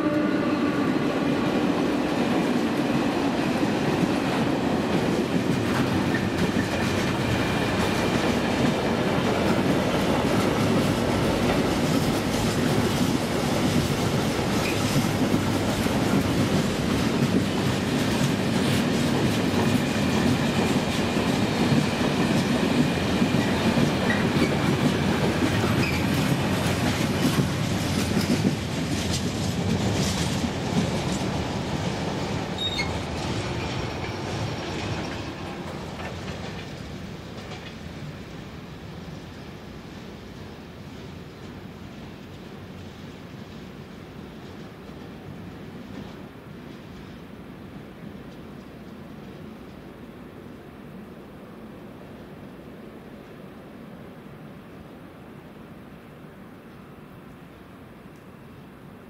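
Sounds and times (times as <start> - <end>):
train wheels clacking over rail joints: 2.3 - 38.1.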